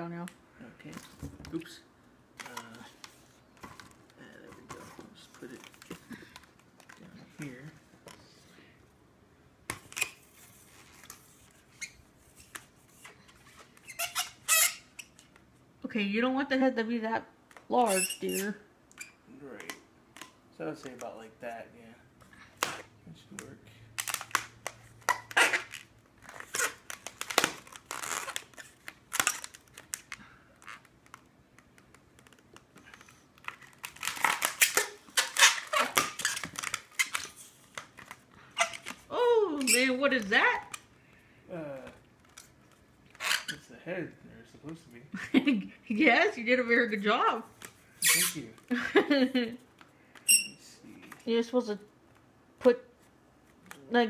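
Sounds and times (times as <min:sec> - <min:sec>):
balloon rubbery squeaks: 0:09.8 - 0:10.6, 0:11.2 - 0:15.3, 0:17.7 - 0:19.2, 0:24.0 - 0:40.9, 0:42.2 - 0:43.7, 0:47.9 - 0:48.6.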